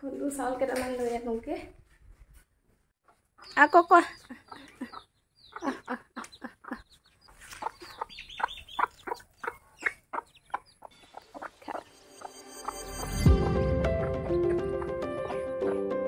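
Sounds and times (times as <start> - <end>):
hen clucking: 3.0 - 15.9.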